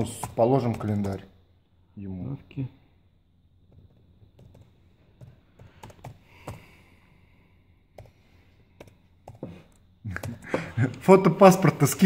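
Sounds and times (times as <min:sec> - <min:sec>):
keyboard typing: 0:00.0 - 0:01.3, 0:03.7 - 0:06.7, 0:07.9 - 0:10.6.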